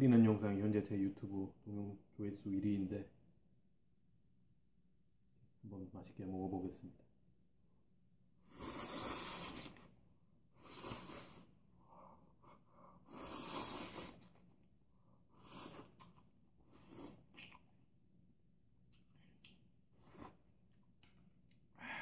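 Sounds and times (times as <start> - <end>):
person slurping noodles: 8.4 - 9.9, 10.6 - 11.6, 12.9 - 14.6, 15.3 - 17.7.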